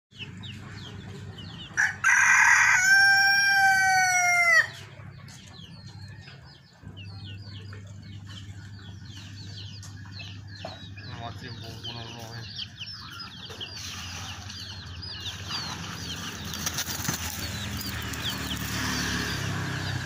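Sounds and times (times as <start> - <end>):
rooster crowing: 1.8 - 4.8.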